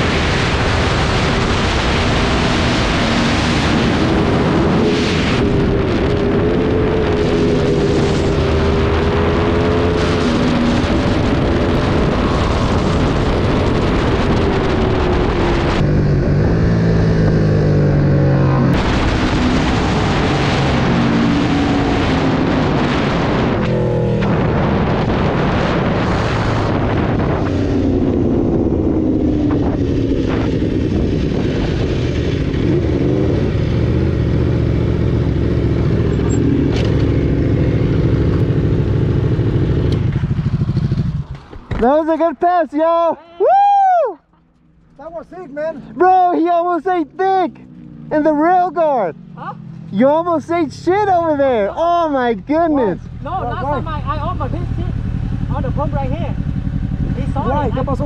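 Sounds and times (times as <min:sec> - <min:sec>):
wind rush on microphone: 0:00.0 - 0:41.8
motorcycle engine revving: 0:00.0 - 0:41.9, 0:44.3 - 0:58.0.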